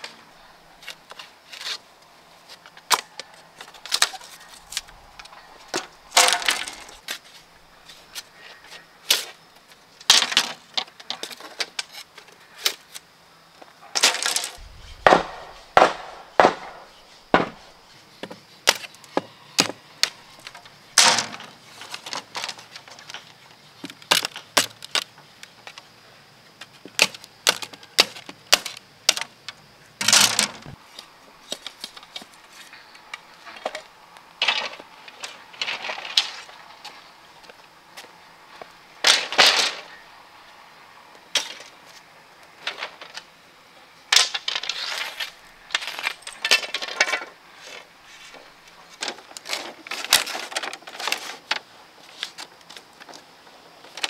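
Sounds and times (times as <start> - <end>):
bamboo cracking: 0.8 - 7.5
machete chopping bamboo: 15.1 - 17.6.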